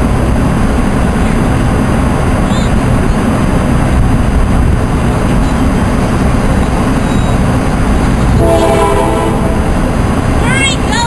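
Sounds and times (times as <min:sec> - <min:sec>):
loud low rumble: 0:00.0 - 0:11.0
locomotive air horn: 0:08.3 - 0:10.0.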